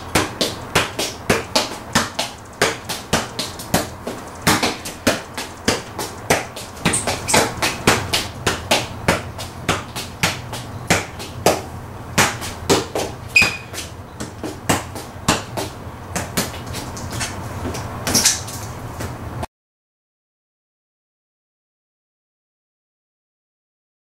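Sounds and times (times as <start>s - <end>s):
feet striking a ball: 0.0s - 18.3s
high squeak: 13.3s - 13.8s.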